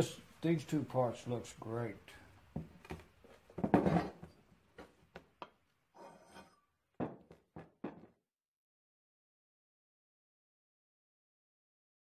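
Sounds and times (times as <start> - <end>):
metal parts clunking on workbench: 3.6 - 4.3.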